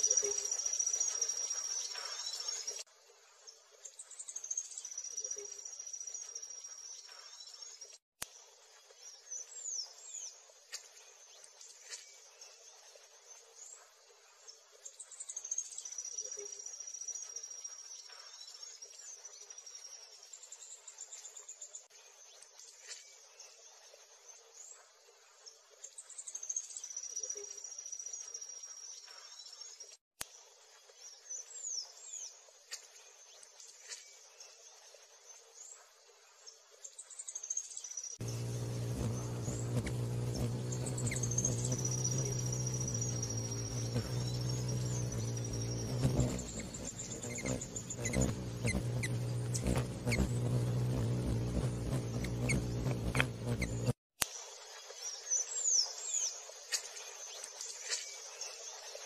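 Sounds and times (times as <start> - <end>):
small birds chirping: 0.0 - 54.0
insects trilling: 38.2 - 54.0.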